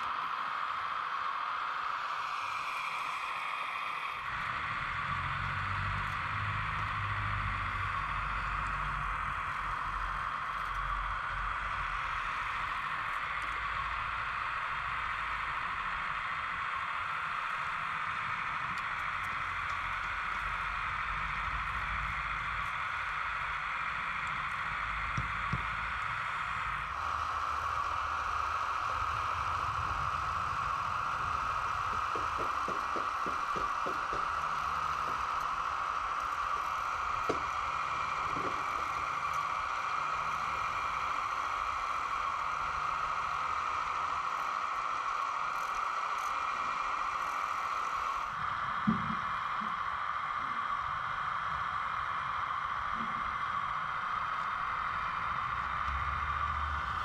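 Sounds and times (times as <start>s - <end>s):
hydraulic pump whining: 24.7s - 49.4s.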